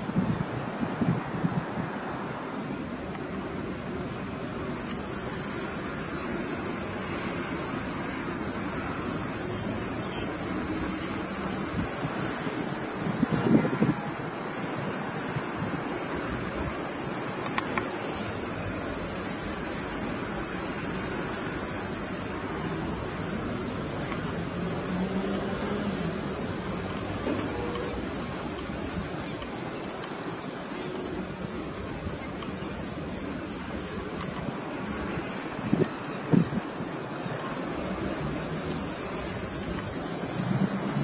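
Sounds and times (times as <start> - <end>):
wind noise: 0.0 - 2.2, 4.7 - 25.2, 31.5 - 36.7, 37.6 - 41.0
high hiss pulsing: 4.7 - 41.0.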